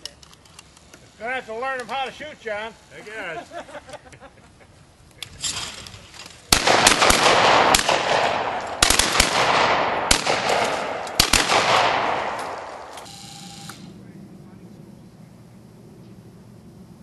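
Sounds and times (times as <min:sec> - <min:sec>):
shotguns firing: 0:06.5 - 0:13.1.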